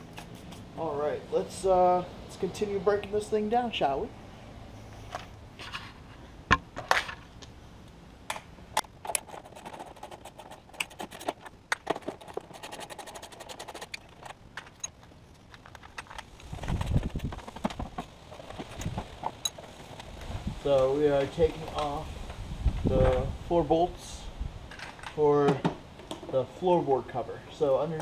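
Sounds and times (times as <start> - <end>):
metal tools clinking: 10.8 - 16.3.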